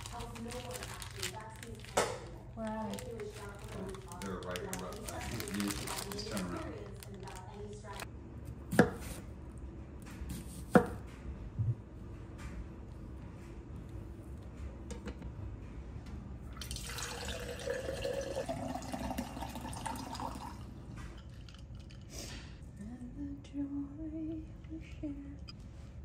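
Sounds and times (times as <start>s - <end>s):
water pouring into a glass jar: 16.6s - 20.6s.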